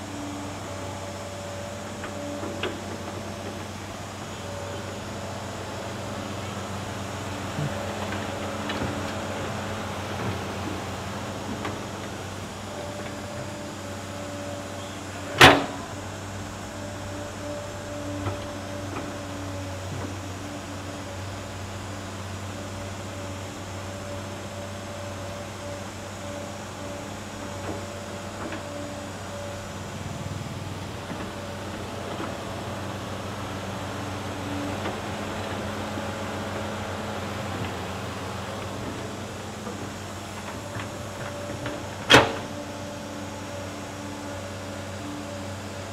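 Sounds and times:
excavator diesel engine running: 0.0s - 45.9s.

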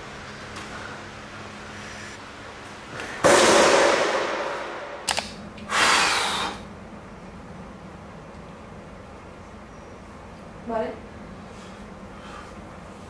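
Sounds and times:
sharp clicks: 5.0s - 5.4s
hissing bursts: 5.6s - 6.6s.

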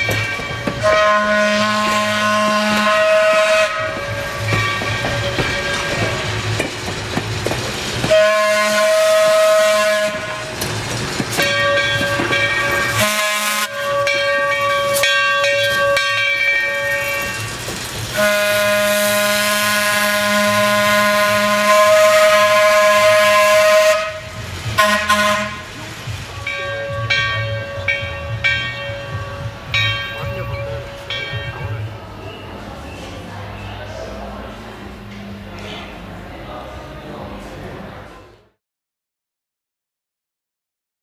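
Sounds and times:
train wheels rumbling and clattering: 0.0s - 38.4s
locomotive horn blasts: 0.7s - 6.1s, 8.1s - 10.5s, 11.7s - 17.4s, 18.1s - 25.7s.

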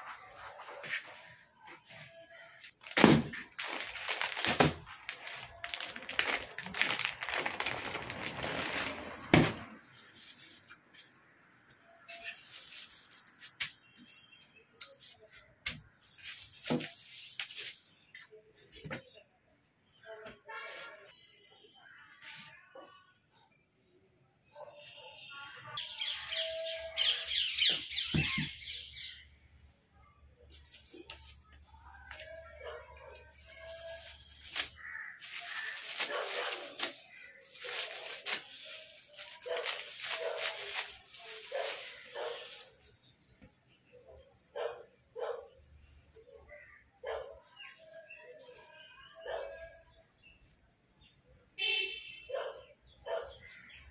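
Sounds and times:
plastic packaging crinkling: 2.0s - 9.8s, 12.1s - 13.8s, 16.0s - 17.9s, 33.3s - 43.0s.

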